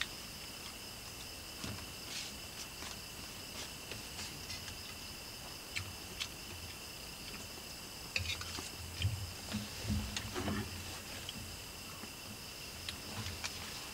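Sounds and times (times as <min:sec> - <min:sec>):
insects chirring: 0:00.0 - 0:13.9.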